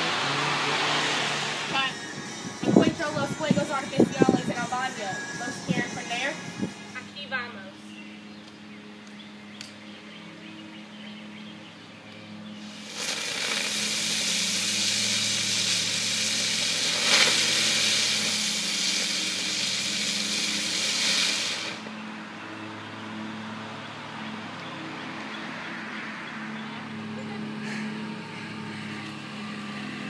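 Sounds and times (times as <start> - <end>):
loud steady hiss: 0.0 - 7.0, 12.6 - 22.1
low hum: 0.0 - 7.2.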